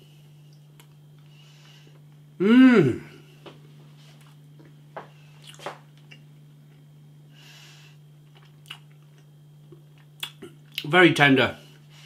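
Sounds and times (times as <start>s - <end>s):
steady low hum: 0.0s - 12.0s
person chewing food: 5.4s - 6.8s, 8.2s - 10.8s.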